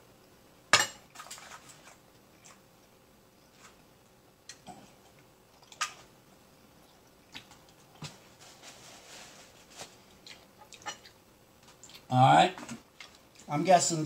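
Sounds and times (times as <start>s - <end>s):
paper napkin rustle: 8.0s - 10.2s.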